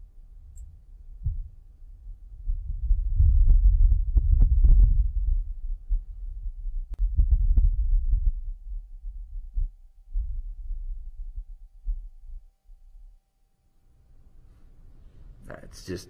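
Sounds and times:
wind buffeting microphone: 1.1s - 10.5s.

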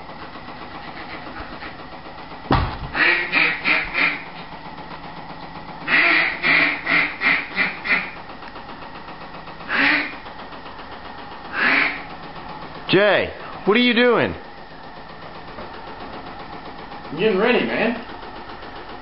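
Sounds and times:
decoy motor humming: 0.0s - 19.0s
duck call quacks: 3.0s - 4.2s, 5.9s - 8.1s, 9.7s - 10.1s, 11.5s - 12.0s.

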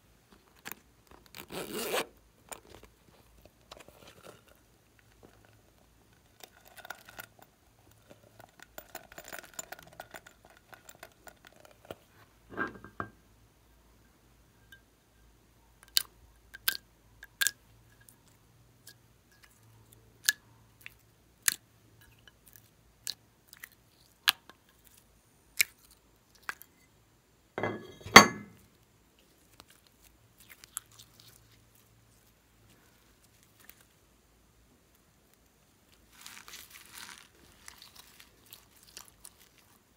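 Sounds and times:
slime squelch: 29.3s - 33.9s, 36.0s - 39.8s
plastic bits pouring from bag: 36.1s - 38.3s.

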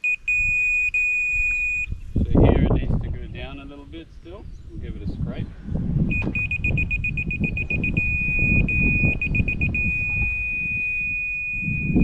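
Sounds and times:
high-pitched electronic beeps: 0.0s - 1.9s, 6.1s - 12.0s
continuous steady tone: 0.0s - 4.4s, 5.8s - 12.0s.

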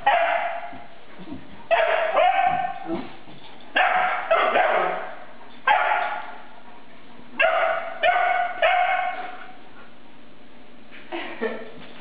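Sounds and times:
puppy yappy barks: 0.0s - 0.8s, 1.7s - 2.9s, 3.8s - 6.4s, 7.4s - 9.5s.

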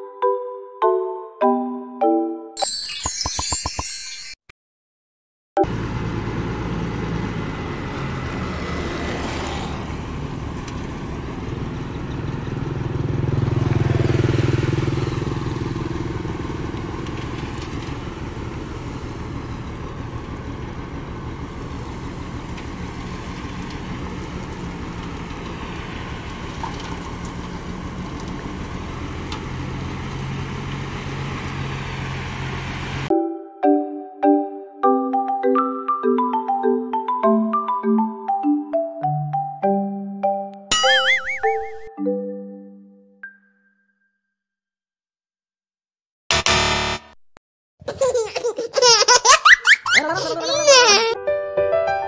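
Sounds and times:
diesel truck engine running: 5.6s - 33.1s.

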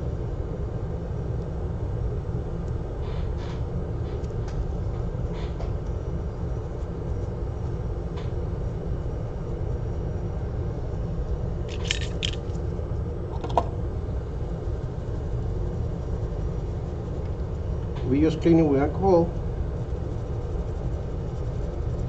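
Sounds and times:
low machine hum: 0.0s - 22.0s
small tools clicking: 11.7s - 12.5s.

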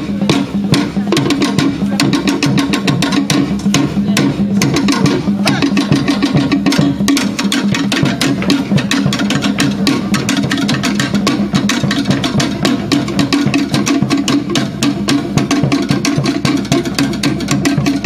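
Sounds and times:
sticks beating wooden slit drums: 0.0s - 18.0s.

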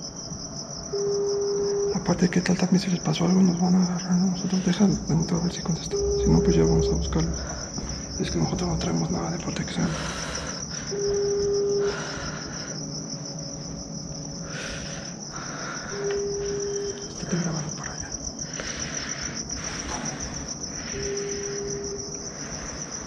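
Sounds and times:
crickets chirping: 0.0s - 23.0s
phone ringback tone: 10.9s - 12.0s.

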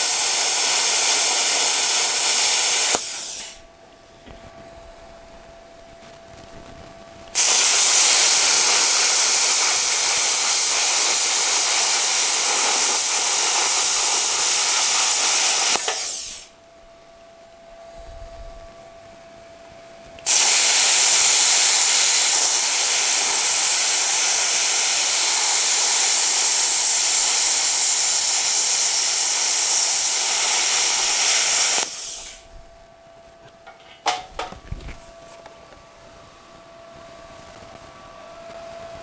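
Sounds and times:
plasma cutter hissing: 0.0s - 3.6s, 7.4s - 16.5s, 20.2s - 32.5s.

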